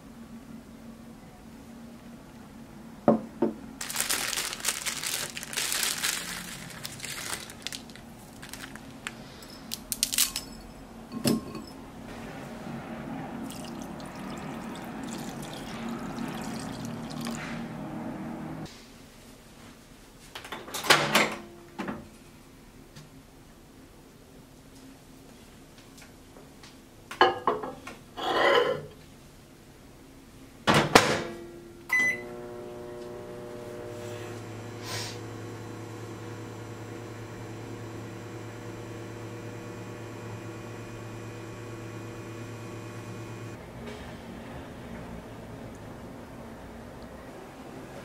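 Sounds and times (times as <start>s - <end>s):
rustling: 3.8s - 10.2s
water pouring into bowl: 13.4s - 17.6s.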